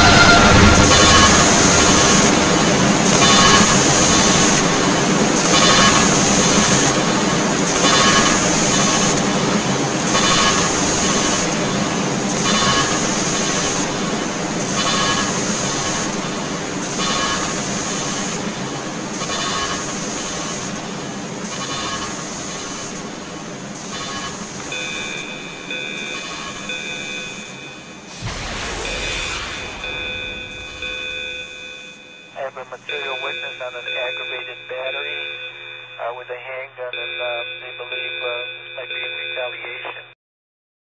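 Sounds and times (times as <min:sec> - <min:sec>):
loud pulse: 0:00.0 - 0:04.8, 0:28.1 - 0:32.4
steady high whine: 0:00.0 - 0:33.2
steady high tones: 0:28.0 - 0:33.6.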